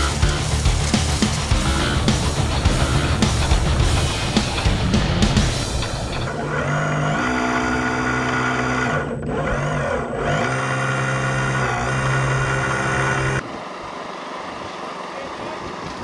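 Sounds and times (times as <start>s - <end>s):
toy excavator motor whining: 5.8s - 16.0s.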